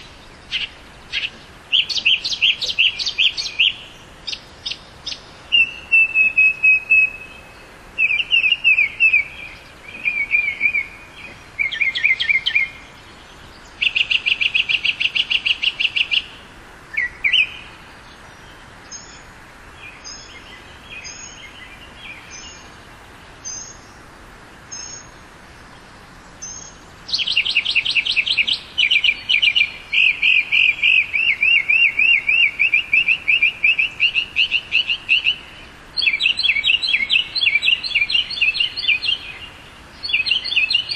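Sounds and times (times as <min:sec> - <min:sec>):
mockingbird singing: 0:00.0 - 0:17.8, 0:26.4 - 0:40.9.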